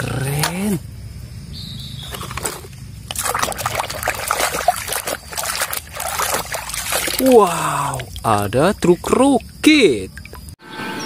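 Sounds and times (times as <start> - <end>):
water sloshing in a plastic tub: 2.0 - 10.6.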